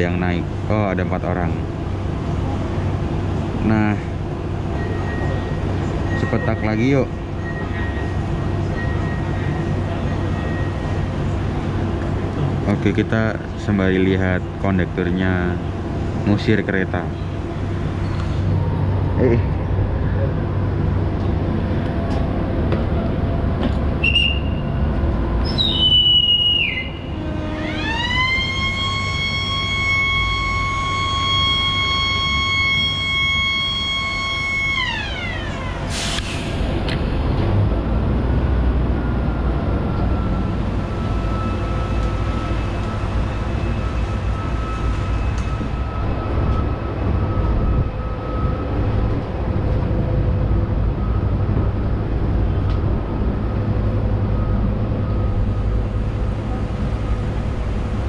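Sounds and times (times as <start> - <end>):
train rumbling: 0.0 - 58.0
conductor's whistle: 24.0 - 24.7, 25.4 - 36.4
train horn: 26.0 - 35.4
faint whine: 39.0 - 58.0.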